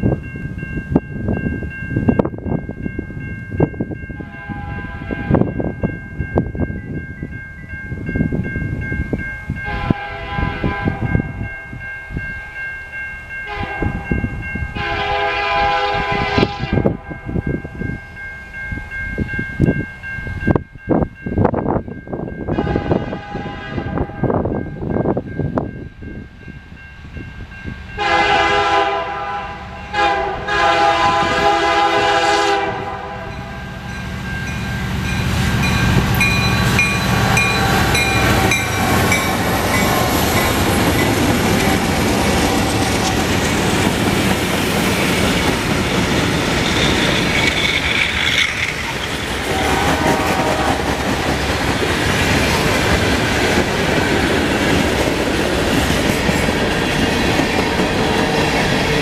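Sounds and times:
train air horn blasts: 0:04.2 - 0:05.5, 0:09.6 - 0:11.3, 0:13.4 - 0:17.2, 0:22.5 - 0:24.4, 0:28.0 - 0:33.6, 0:49.4 - 0:51.0
diesel locomotive rumble: 0:28.0 - 0:59.0
train wheels clattering on rails: 0:34.4 - 0:59.0
wheel squeal: 0:46.6 - 0:49.2.

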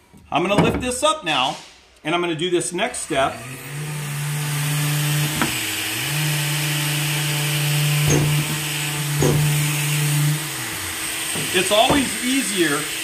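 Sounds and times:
orbital sander running: 0:03.0 - 0:13.0
sander pad knocks: 0:08.0 - 0:09.7, 0:11.3 - 0:12.2.

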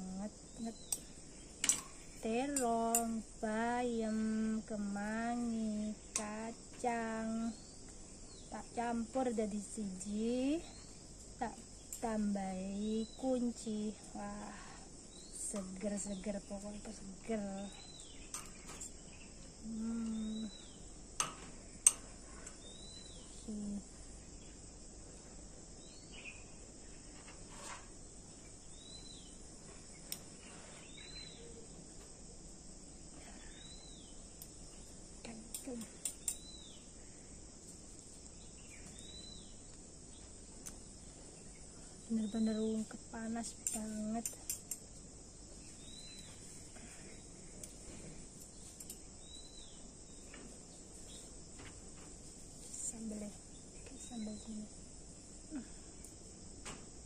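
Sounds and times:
insect chirring: 0:00.0 - 0:57.0
cutlery clicking on plate: 0:01.6 - 0:02.0, 0:18.3 - 0:18.9, 0:43.6 - 0:44.8.

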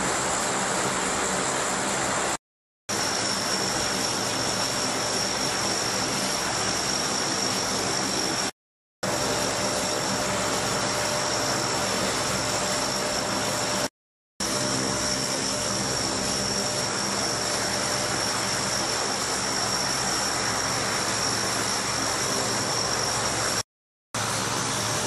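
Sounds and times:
turboprop engines droning: 0:00.0 - 0:23.6, 0:24.2 - 0:25.0.

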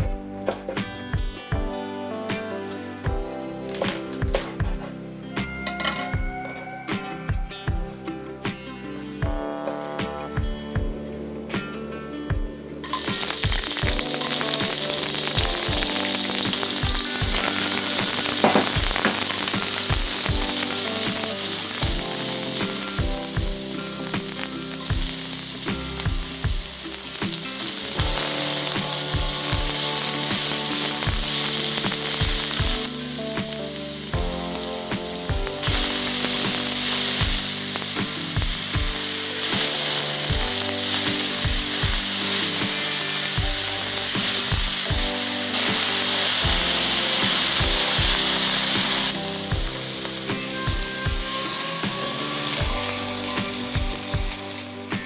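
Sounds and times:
vegetables sizzling in hot oil: 0:12.8 - 0:55.0.

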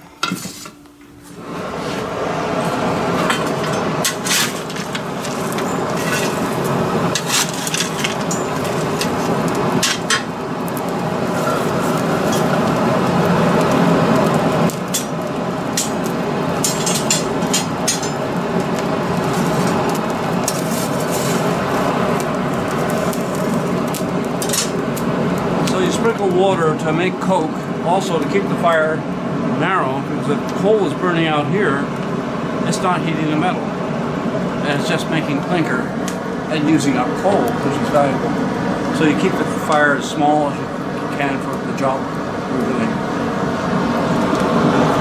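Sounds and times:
burning coal crackling: 0:00.4 - 0:45.0
forge fire rushing: 0:01.4 - 0:45.0.

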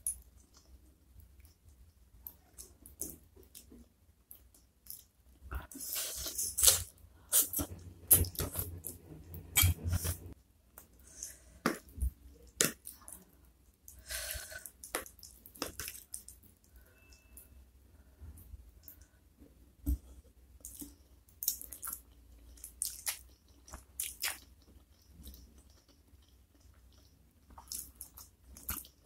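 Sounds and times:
wet chewing and smacking: 0:20.6 - 0:29.0.

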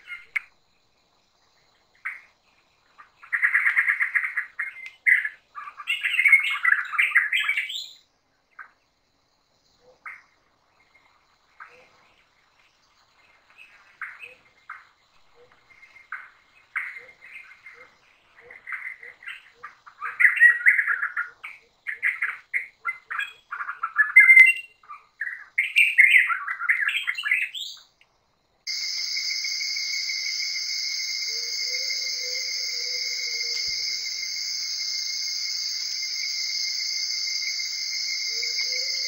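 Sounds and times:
night insects droning: 0:00.0 - 0:39.0
birds chirping and calling: 0:28.7 - 0:39.0
constant high whine: 0:28.7 - 0:39.0.

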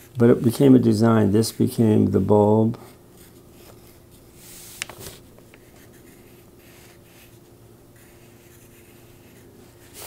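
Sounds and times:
faint steady hum: 0:00.0 - 0:10.0
pencil scratching on paper: 0:05.6 - 0:10.0.

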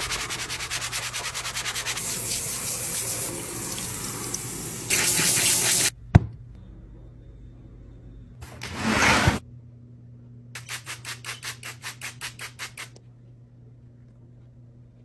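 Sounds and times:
sponge scrubbing sink: 0:00.0 - 0:05.9
faucet sprayer running water: 0:01.2 - 0:05.9.

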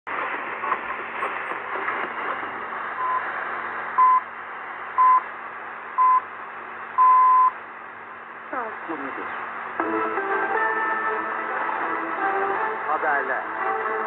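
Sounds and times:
radio reception hiss: 0:00.1 - 0:07.7, 0:08.3 - 0:09.8, 0:11.4 - 0:14.0
radio time signal beeps: 0:03.0 - 0:03.3, 0:04.0 - 0:04.3, 0:05.0 - 0:05.2, 0:06.0 - 0:06.2, 0:07.0 - 0:07.6.

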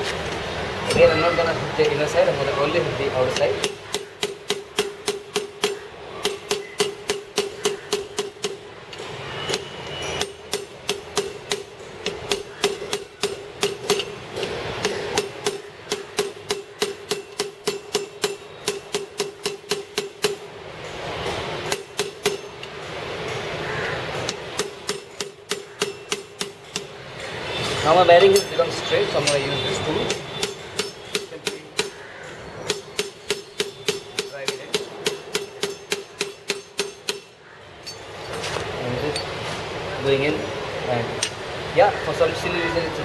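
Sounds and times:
hammer tapping steel spanner: 0:03.4 - 0:21.0.

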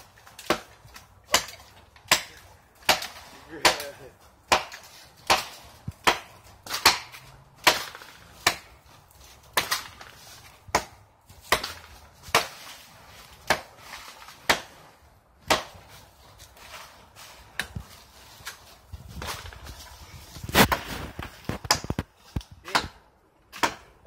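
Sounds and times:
machete chopping into tree: 0:00.2 - 0:08.7, 0:09.4 - 0:15.9, 0:20.4 - 0:23.9.

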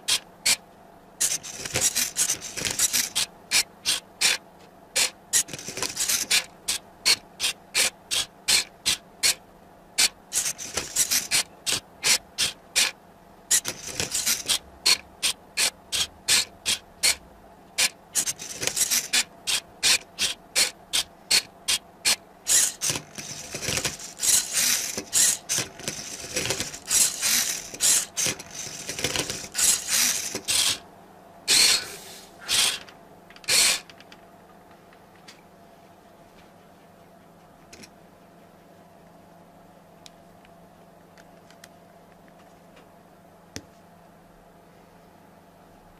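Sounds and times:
robot whirring and rasping: 0:00.0 - 0:00.6, 0:01.2 - 0:04.4, 0:05.0 - 0:09.4, 0:10.0 - 0:12.9, 0:13.5 - 0:17.2, 0:17.8 - 0:30.8, 0:31.5 - 0:31.9, 0:32.5 - 0:33.9
short mechanical clicks: 0:01.2 - 0:04.4, 0:05.0 - 0:09.4, 0:10.0 - 0:12.9, 0:13.5 - 0:17.2, 0:17.8 - 0:30.8.

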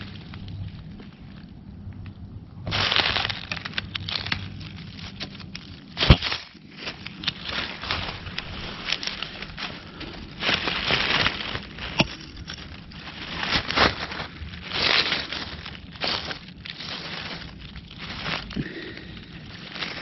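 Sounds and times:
dry leaves crinkling and crackling: 0:00.0 - 0:20.0.

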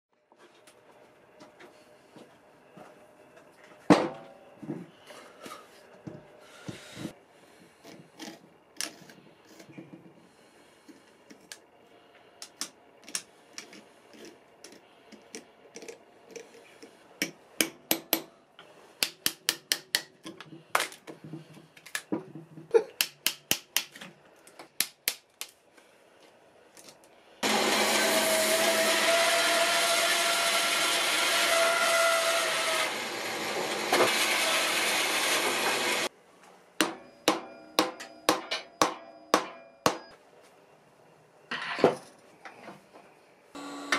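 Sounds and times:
bandsaw whining: 0:27.4 - 0:36.1, 0:43.6 - 0:43.9.

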